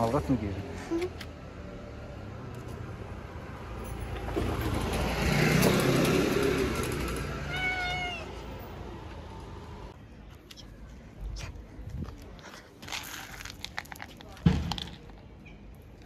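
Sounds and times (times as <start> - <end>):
cat meowing: 7.4 - 8.5.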